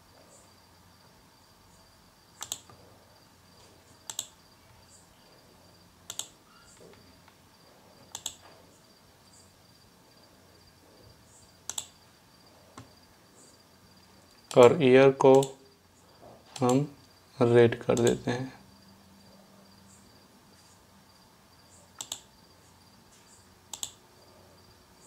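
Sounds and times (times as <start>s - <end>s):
faint high whine: 0.0s - 25.0s
computer mouse double clicks: 2.4s - 2.8s, 4.1s - 4.3s, 11.7s - 11.9s, 22.0s - 22.3s, 23.7s - 24.0s.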